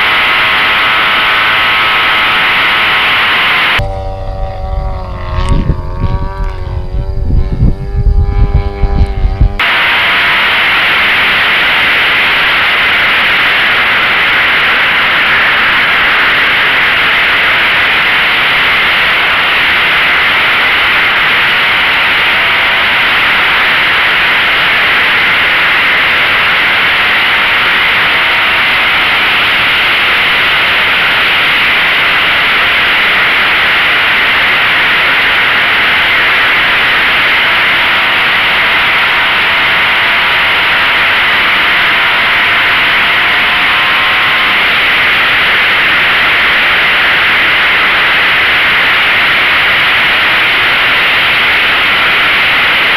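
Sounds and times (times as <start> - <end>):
wind rushing over camera: 0.0 - 52.9
model plane motor hum: 3.6 - 9.6, 34.9 - 47.2.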